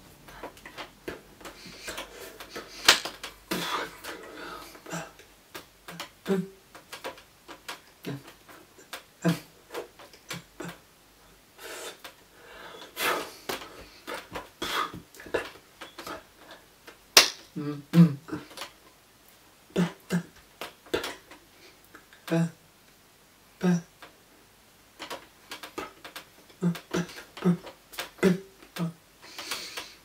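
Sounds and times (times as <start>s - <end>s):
hands clapping and slapping: 2.8s - 3.3s, 17.2s - 17.5s
breath puffs and grunts: 26.6s - 30.0s.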